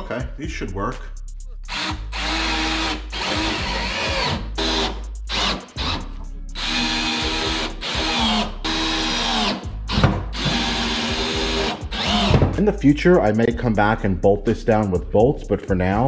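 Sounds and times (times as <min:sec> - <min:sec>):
power drill driving screws: 0:01.7 - 0:06.0, 0:06.6 - 0:12.5.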